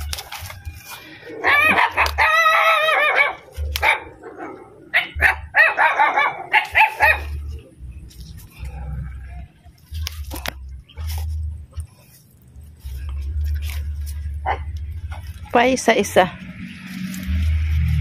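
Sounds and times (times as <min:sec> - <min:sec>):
dog yelping: 0:01.4 - 0:07.5, 0:14.4 - 0:14.7.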